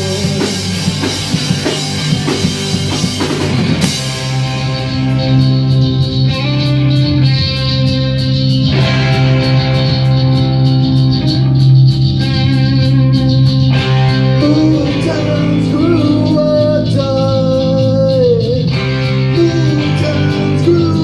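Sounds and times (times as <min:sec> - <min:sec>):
person singing: 0:00.0 - 0:01.1, 0:14.2 - 0:21.0
cymbal beat: 0:00.0 - 0:15.6
punk rock band playing live: 0:00.0 - 0:21.0.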